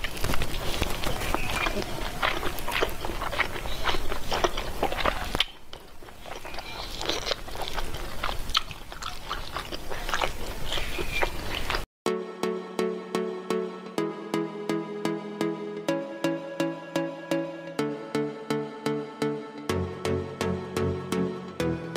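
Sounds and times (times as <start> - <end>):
fingers squishing into rice: 0.0 - 11.8
wet chewing and mouth smacks: 0.0 - 11.9
electronic music: 12.1 - 21.9.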